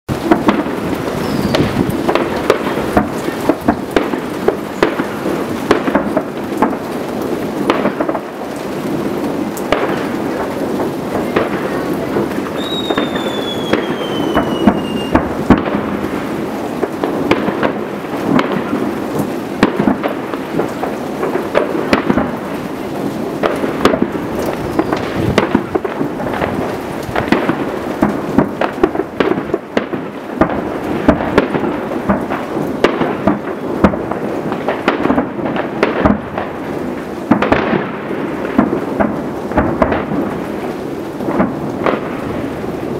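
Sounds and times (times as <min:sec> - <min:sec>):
distant fireworks booms and crackling: 0:00.1 - 0:42.9
firework whistle falling: 0:01.2 - 0:01.9, 0:12.4 - 0:15.4.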